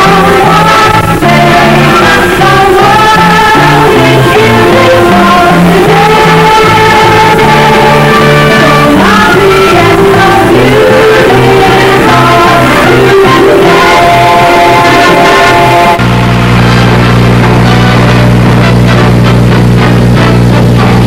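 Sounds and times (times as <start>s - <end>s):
person singing: 0.0s - 16.0s
upbeat music: 0.0s - 21.0s.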